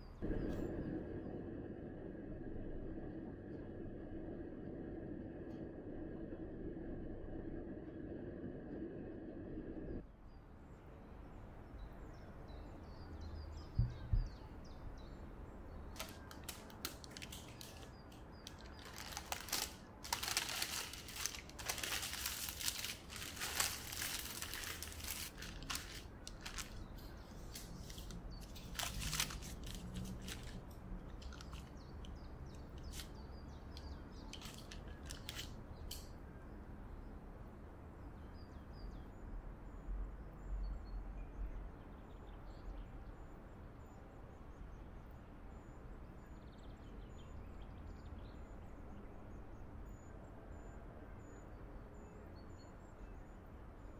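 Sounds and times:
baking parchment crinkling: 0:15.9 - 0:36.1.

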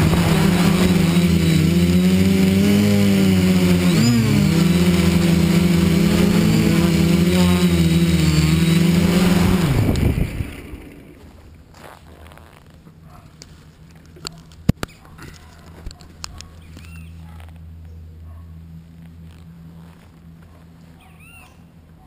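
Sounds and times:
drone motors humming: 0:00.0 - 0:11.8.

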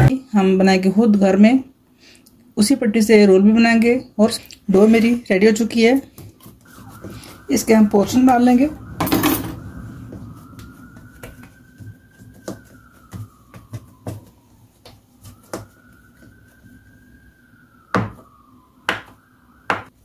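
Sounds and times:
knife tapping dough on worktop: 0:18.9 - 0:19.9.

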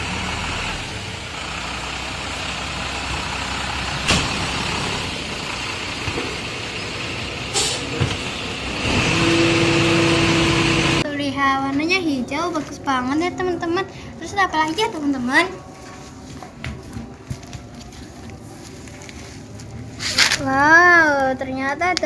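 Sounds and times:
garbage truck running: 0:00.0 - 0:16.2
sharp knocks of a wheelie bin: 0:04.0 - 0:04.8.

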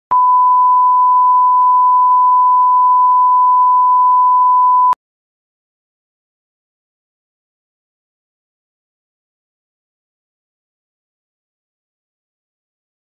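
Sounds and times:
steady test tone beep: 0:00.1 - 0:05.0.

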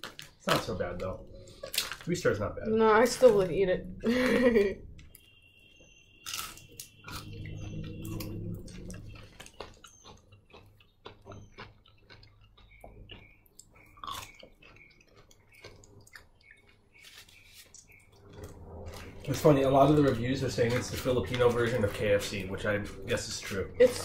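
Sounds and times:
chewing and biting food: 0:00.0 - 0:02.1, 0:06.2 - 0:22.1
low murmur: 0:18.2 - 0:24.0.

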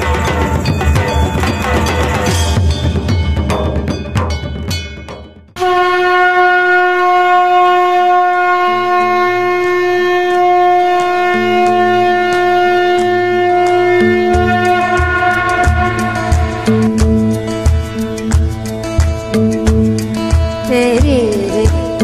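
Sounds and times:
held conch-like horn note: 0:05.6 - 0:18.0
low pulsing drone: 0:08.3 - 0:22.0.

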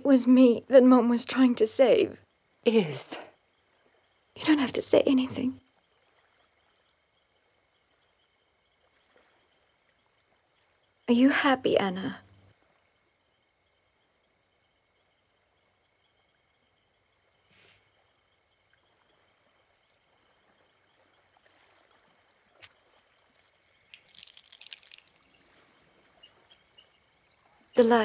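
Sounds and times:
faint rustle: 0:17.3 - 0:27.9.

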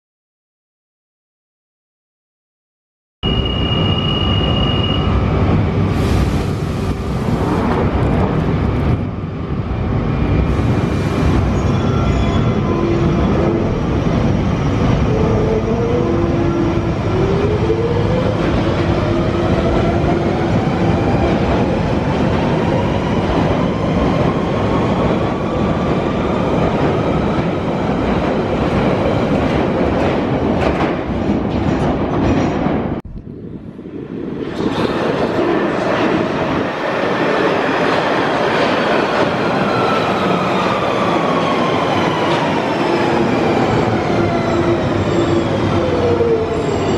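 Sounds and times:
train approaching through tunnel: 0:03.2 - 0:46.9
train rumble and wheel clatter: 0:03.4 - 0:46.9.

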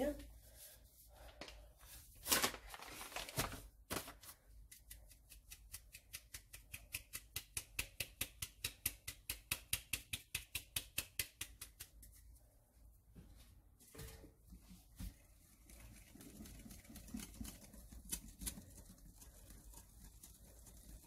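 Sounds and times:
flour sieve rustling shakes: 0:00.5 - 0:07.6, 0:14.5 - 0:21.0.

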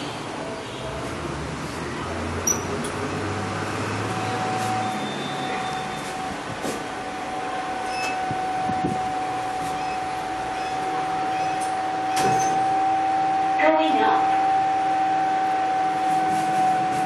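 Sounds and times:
thin whine: 0:03.9 - 0:17.0.

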